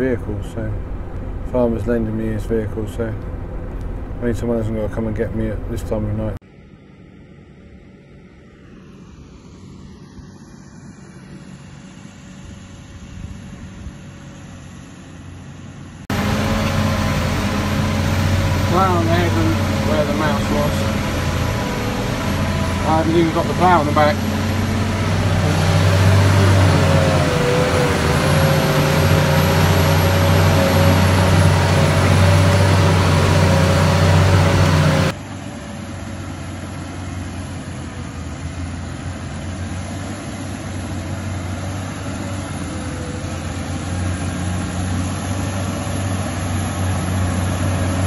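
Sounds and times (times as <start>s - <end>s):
tractor engine from inside cab: 0.0s - 6.4s, 14.4s - 48.0s
tractors pulling plough: 16.1s - 48.0s.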